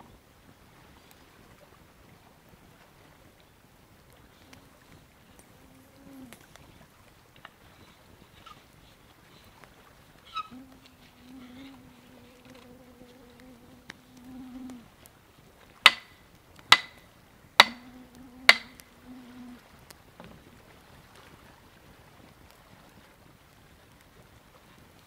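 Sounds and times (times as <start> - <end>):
flying insect buzzing: 5.4 - 6.5, 10.5 - 14.9, 17.6 - 19.6
sharp ringing knocks: 15.9 - 17.0, 17.6 - 17.9, 18.5 - 18.8.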